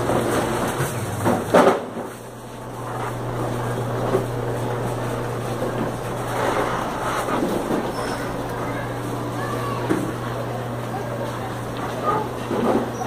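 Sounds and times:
shopping cart rattling on tiled floor: 0.0 - 2.2, 6.1 - 8.9
steady low hum: 0.0 - 12.9
loud clunk: 1.2 - 2.1.

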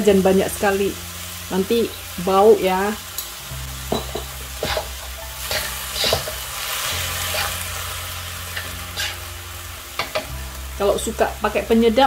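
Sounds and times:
meat sizzling in a wok: 0.0 - 12.0
metal turner scraping a pan: 3.9 - 6.5, 7.2 - 7.7, 8.5 - 9.2.

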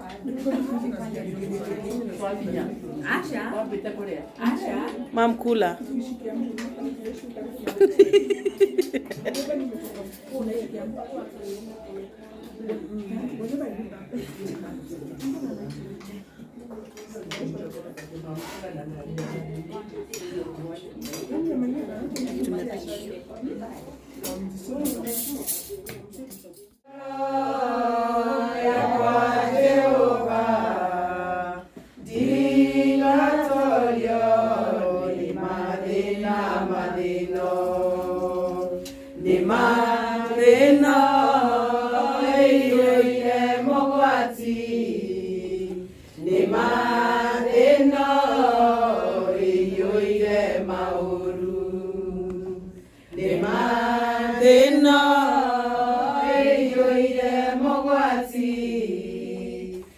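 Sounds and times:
women singing unaccompanied: 26.9 - 59.9.

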